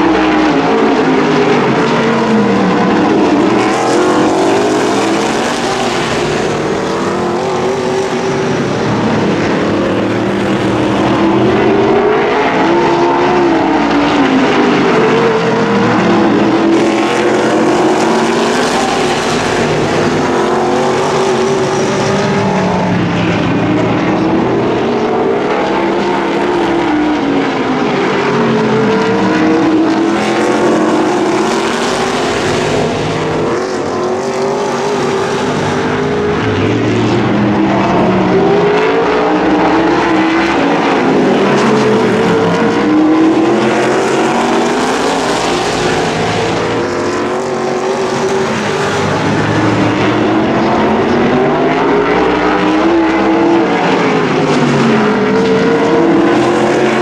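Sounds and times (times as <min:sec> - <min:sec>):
race car engines revving: 0:00.0 - 0:57.0.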